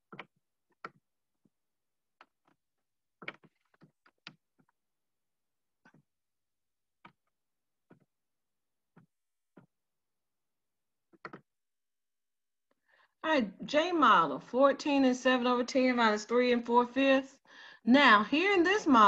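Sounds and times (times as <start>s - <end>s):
stylus tapping drawing tablet: 11.1s - 11.5s.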